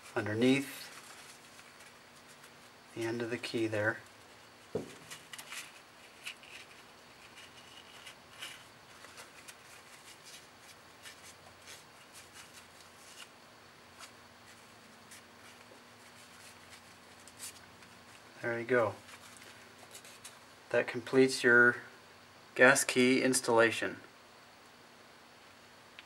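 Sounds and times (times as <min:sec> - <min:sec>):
paper towel rustling and rubbing: 0:00.0 - 0:20.5
small handling ticks: 0:00.0 - 0:20.5.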